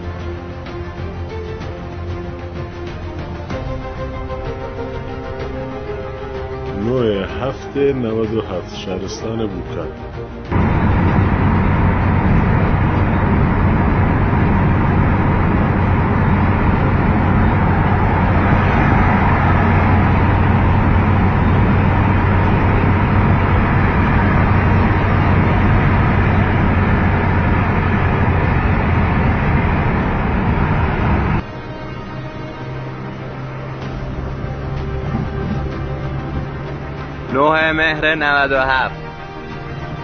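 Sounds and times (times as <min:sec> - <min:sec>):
car road noise drone: 0:00.0 - 0:40.0.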